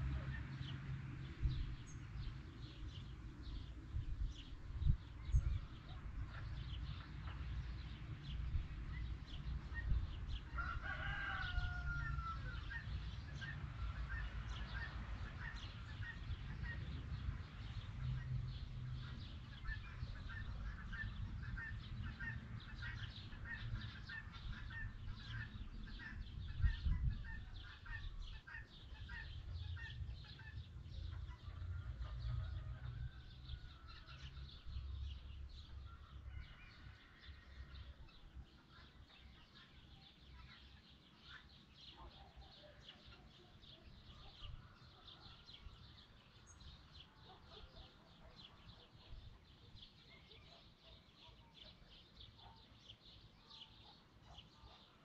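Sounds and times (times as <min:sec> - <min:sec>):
rooster crowing: 0:10.5 - 0:12.8.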